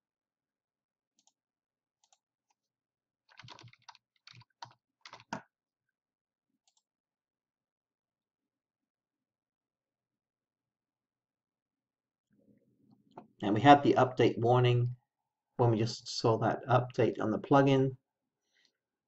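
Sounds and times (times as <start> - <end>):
computer mouse clicking: 3.3 - 5.4.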